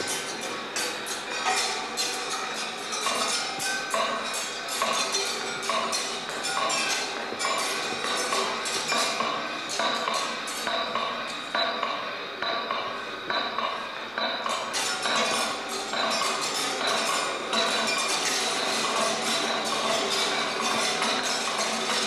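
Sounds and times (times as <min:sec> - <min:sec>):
clinking and pinging strikes: 0:00.0 - 0:22.0.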